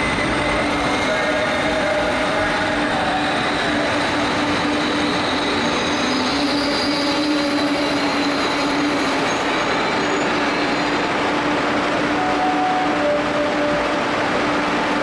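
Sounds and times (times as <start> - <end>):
train rumbling slowly: 0.0 - 15.0
high wheel squeal: 3.3 - 11.2.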